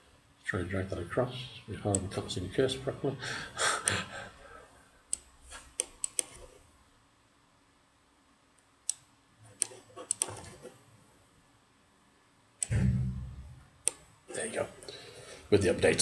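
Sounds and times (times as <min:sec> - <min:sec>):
computer mouse clicking: 0:05.1 - 0:06.6, 0:08.6 - 0:10.7, 0:13.8 - 0:14.1.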